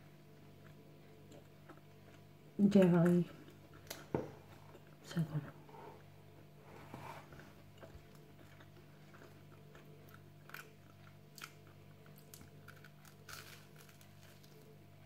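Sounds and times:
chewing toast: 7.4 - 15.0.

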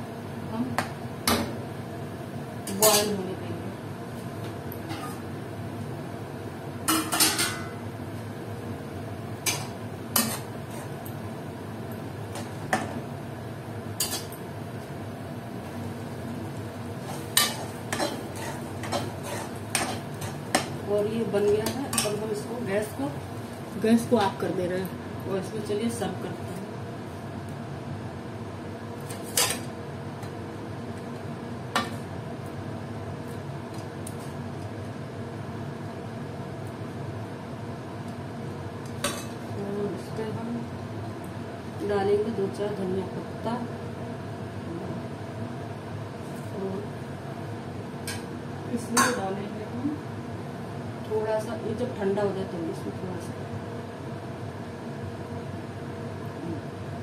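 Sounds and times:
gas burner hum and hiss: 0.0 - 57.0.

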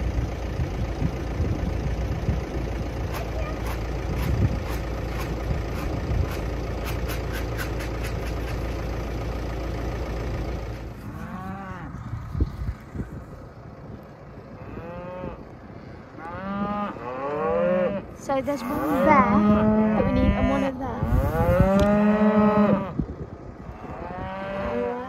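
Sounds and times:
tractor engine running: 0.0 - 14.6, 22.9 - 24.2
cattle mooing: 11.0 - 12.1, 14.5 - 15.5, 16.1 - 23.0, 23.6 - 25.0.

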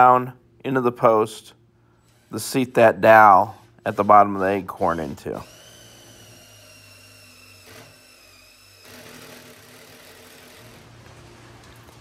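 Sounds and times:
cordless drill boring into wood: 3.9 - 10.9.

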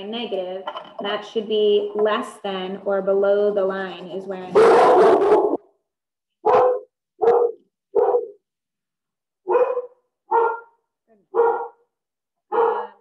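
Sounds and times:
dog barking: 4.5 - 5.6, 6.4 - 8.4, 9.4 - 11.8, 12.5 - 13.0.

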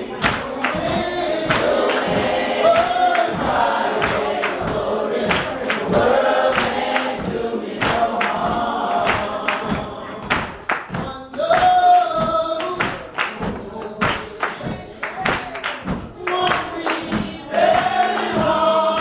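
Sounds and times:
congregation singing: 0.0 - 19.0
hand claps: 0.0 - 19.0
woman singing gospel song: 15.9 - 19.0.

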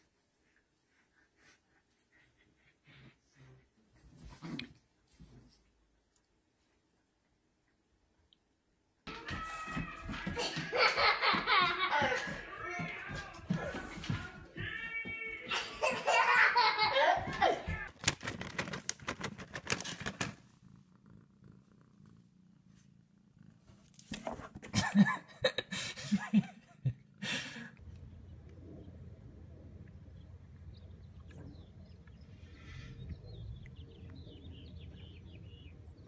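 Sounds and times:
low background hum: 20.4 - 36.0
faint chirps: 27.9 - 36.0.

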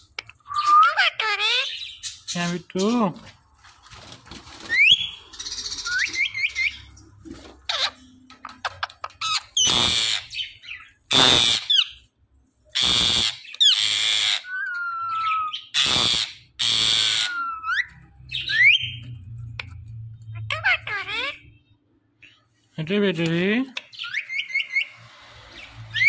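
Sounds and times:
parakeet whistles and screeches: 0.4 - 2.4, 4.6 - 6.9, 7.6 - 8.1, 8.7 - 12.0, 12.8 - 19.2, 23.9 - 26.0.

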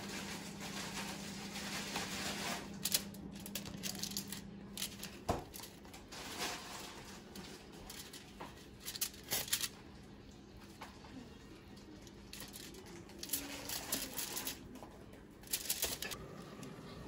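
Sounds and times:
utensils and dishes clattering: 0.0 - 9.8, 11.8 - 16.2.

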